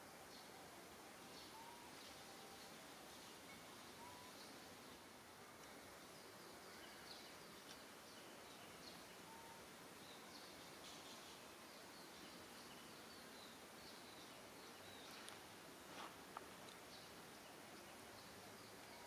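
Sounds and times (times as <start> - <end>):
faint high-pitched chirps: 0.0 - 4.8, 6.2 - 15.4
faint outdoor hiss: 0.0 - 19.0.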